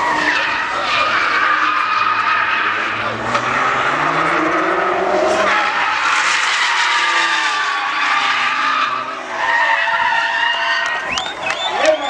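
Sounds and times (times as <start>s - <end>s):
car engine revving: 0.0s - 12.0s
tyres squealing on tarmac: 0.0s - 12.0s.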